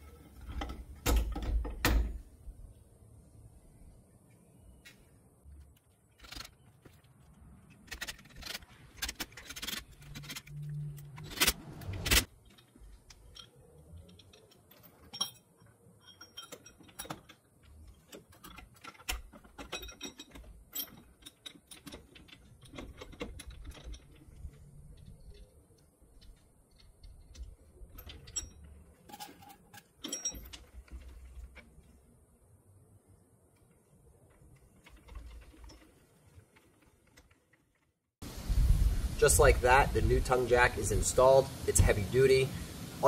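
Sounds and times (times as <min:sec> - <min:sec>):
metal chains clinking and rattling: 0:12.2 - 0:31.6.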